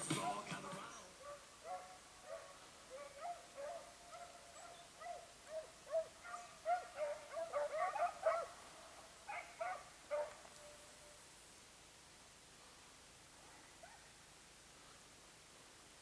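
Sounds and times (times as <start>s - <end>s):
hounds baying: 0.0s - 8.7s, 9.3s - 10.5s.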